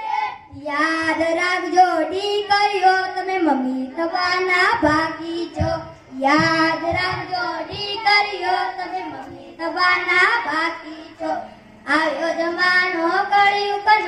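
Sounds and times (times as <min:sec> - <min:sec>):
child singing through loudspeaker: 0:00.0 - 0:14.0
low knocking beat: 0:04.6 - 0:09.4.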